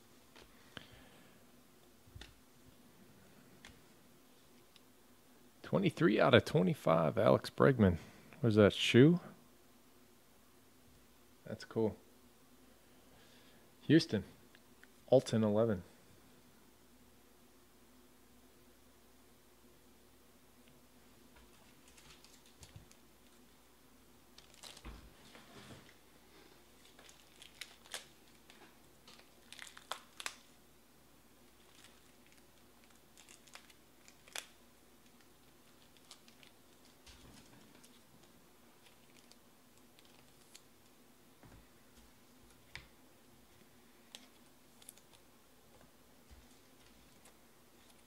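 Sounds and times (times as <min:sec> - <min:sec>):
trading cards rustling: 0:21.4 - 0:23.0, 0:26.7 - 0:30.5, 0:31.6 - 0:40.7, 0:43.9 - 0:45.3, 0:46.4 - 0:48.0.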